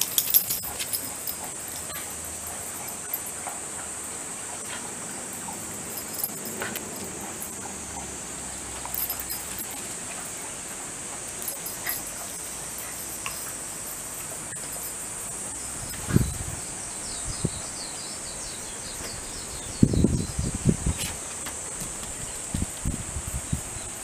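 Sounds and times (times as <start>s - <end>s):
dog claws tapping on concrete: 0.0s - 3.5s
insects droning: 0.0s - 24.0s.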